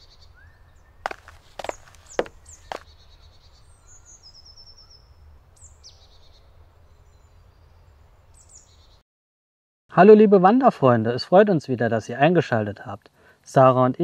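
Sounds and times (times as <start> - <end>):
small birds chirping: 0.0 - 5.0.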